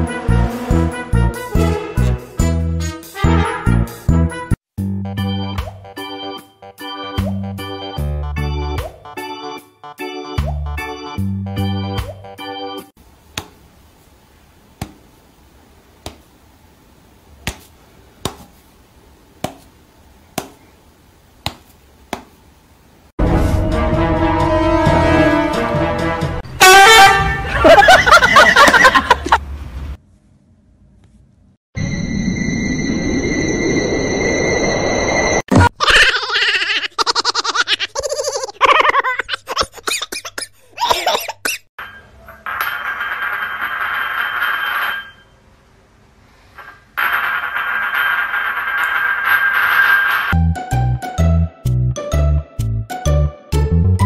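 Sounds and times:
high-pitched laughter: 27.4 - 29.4, 35.5 - 41.6.

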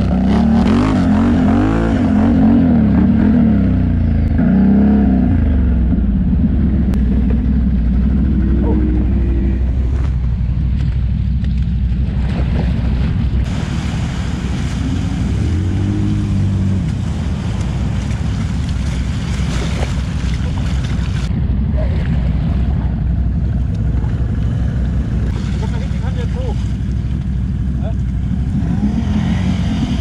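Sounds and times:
quad engines low rumble: 0.0 - 30.0.

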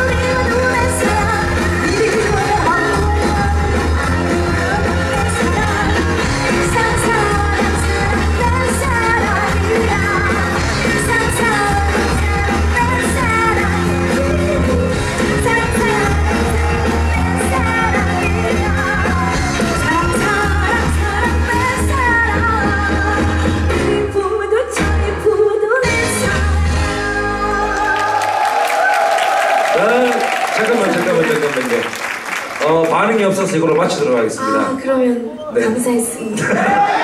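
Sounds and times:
backing music with bass line: 0.0 - 28.0
woman singing into a microphone: 0.0 - 28.2.

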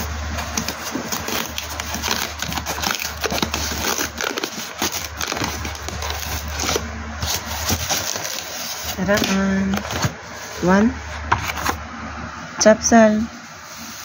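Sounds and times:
packing tape peeling off: 0.4 - 9.4.

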